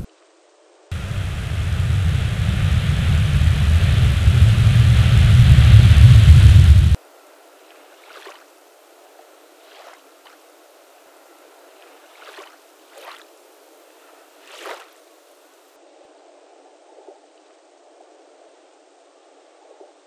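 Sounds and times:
small waves lapping on sand: 6.8s - 15.7s.

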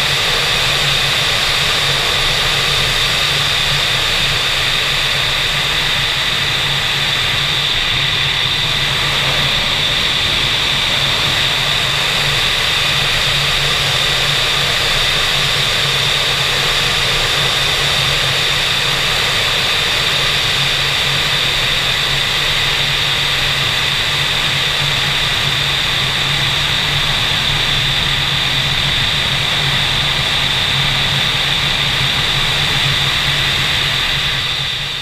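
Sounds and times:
wind rushing over microphone: 0.0s - 17.2s
low hum: 5.5s - 14.0s.

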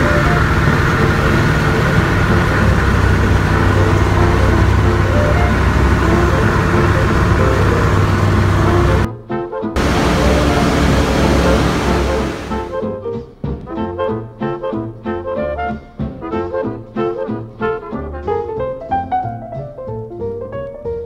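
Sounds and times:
aircraft engines droning: 0.0s - 9.1s, 9.8s - 12.8s
wind rushing: 9.8s - 12.8s.

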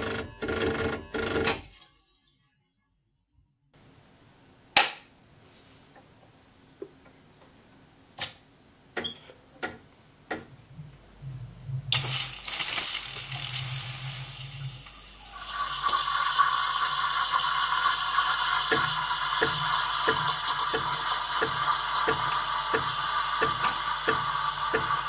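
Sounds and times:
vibratory pump buzzing: 0.0s - 1.6s
steam wand hissing: 11.9s - 25.0s.

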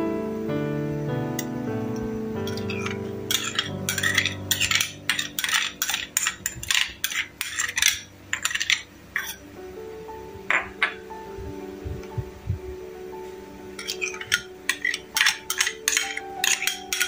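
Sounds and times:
spoon scraping ceramic bowl: 2.5s - 9.4s, 13.8s - 17.0s.

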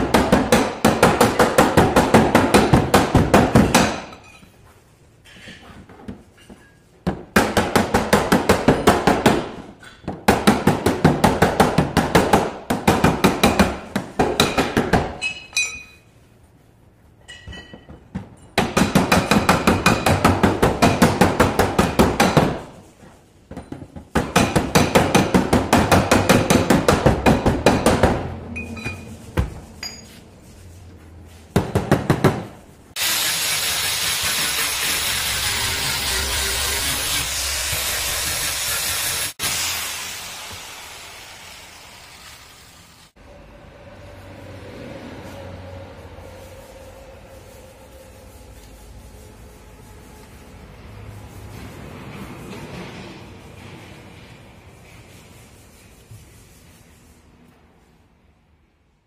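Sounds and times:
hand tool striking sheet metal: 0.0s - 4.4s, 6.3s - 16.0s, 17.2s - 22.9s, 23.6s - 30.2s
handheld sander hissing: 33.0s - 41.4s.

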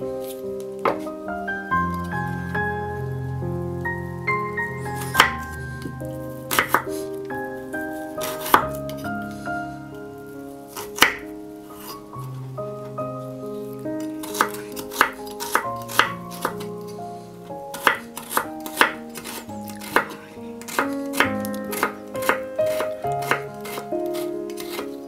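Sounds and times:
background music: 0.0s - 25.0s
knife chopping on wooden board: 6.5s - 6.9s, 14.3s - 16.6s, 17.8s - 24.9s.

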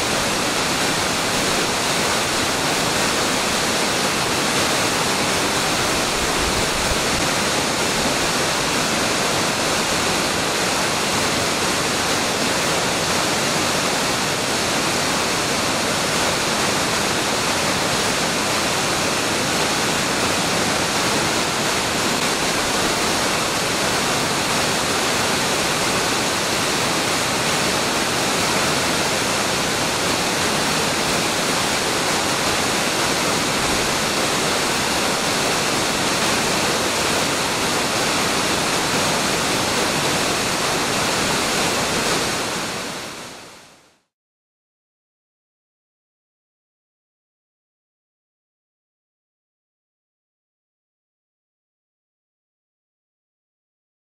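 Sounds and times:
waterfall rushing: 0.0s - 44.1s.

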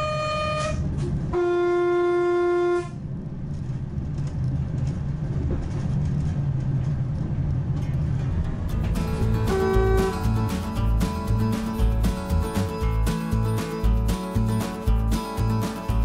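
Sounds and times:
train horn low note: 0.0s - 3.1s, 9.2s - 10.8s
train rumbling on rails: 0.0s - 16.0s.

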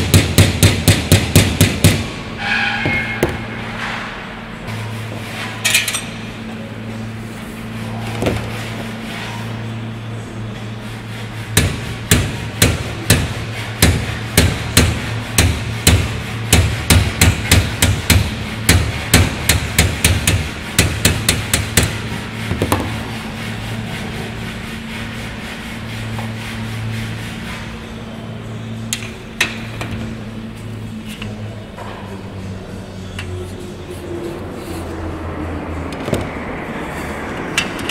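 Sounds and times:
hand hammer striking: 0.0s - 2.1s, 11.5s - 23.0s
steady low hum: 0.0s - 37.9s.

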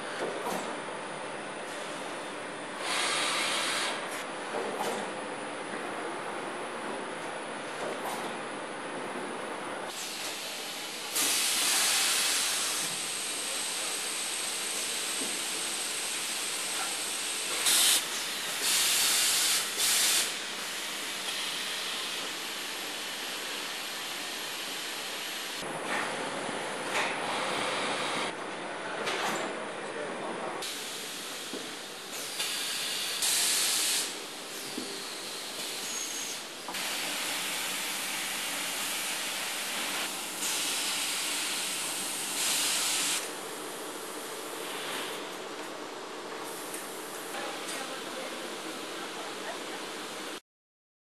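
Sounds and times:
air or steam hissing: 2.8s - 4.1s, 9.9s - 25.6s, 30.6s - 43.4s.

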